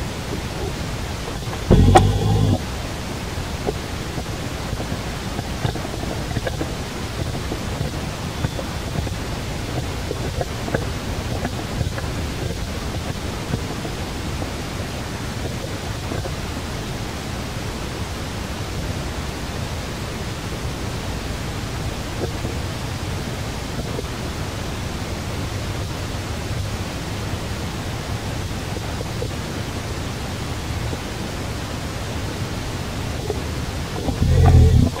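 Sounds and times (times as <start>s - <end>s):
low rumble: 1.7s - 2.8s, 34.0s - 35.0s.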